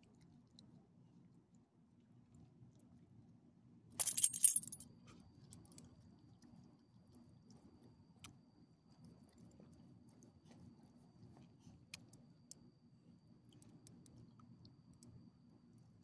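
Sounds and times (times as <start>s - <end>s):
dog collar tags jangling: 4.0s - 4.8s.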